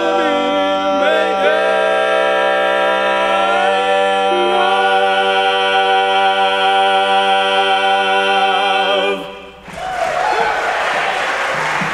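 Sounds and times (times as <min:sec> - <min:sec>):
men singing a capella harmony: 0:00.0 - 0:09.6.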